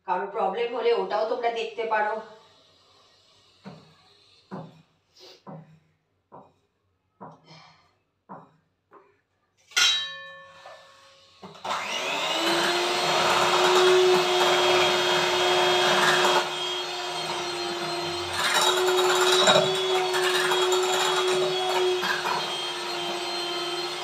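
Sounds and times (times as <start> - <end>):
electric hand mixer beating batter: 11.4 - 24.0.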